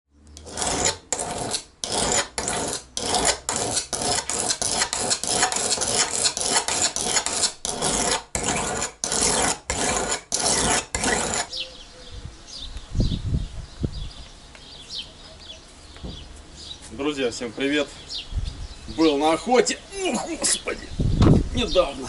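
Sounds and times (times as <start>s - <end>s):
knife rasping on sharpening stone: 0.4s - 11.6s.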